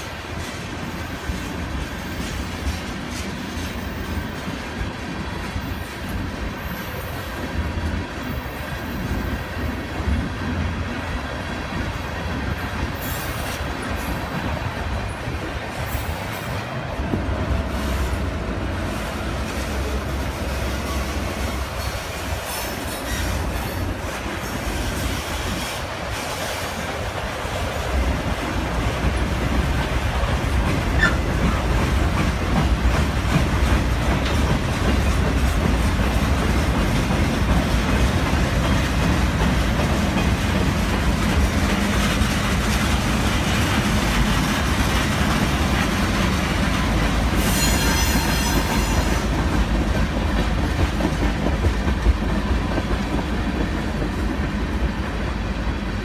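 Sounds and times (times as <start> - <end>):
train wheels rumbling on rails: 0.0 - 56.0
train wheels squealing: 20.7 - 26.8, 30.9 - 31.6, 47.3 - 49.3.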